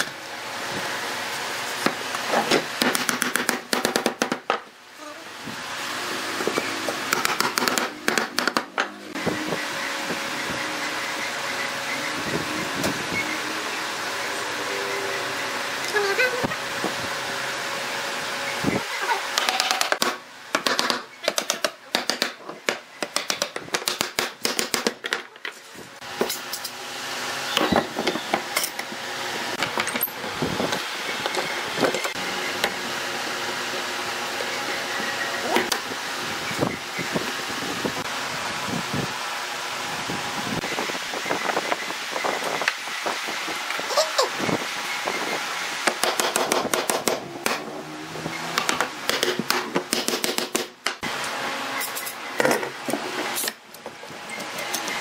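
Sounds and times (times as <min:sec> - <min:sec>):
machine motor running: 0:05.2 - 0:20.0.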